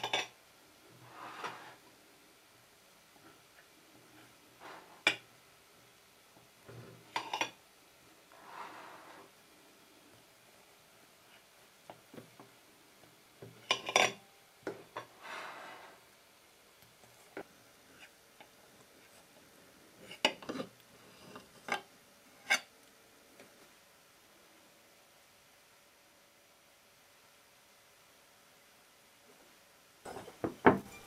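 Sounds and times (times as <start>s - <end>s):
knife clinking and scraping on plate: 7.1s - 7.6s, 13.7s - 14.2s.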